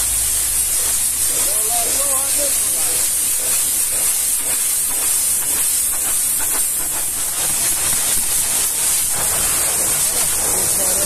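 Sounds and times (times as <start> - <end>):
pressure washer spraying metal: 0.0 - 11.0.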